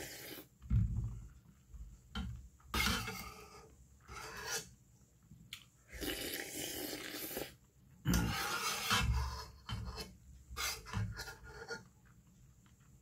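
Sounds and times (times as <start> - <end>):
slurping and chewing: 0.0 - 0.5, 5.5 - 8.9.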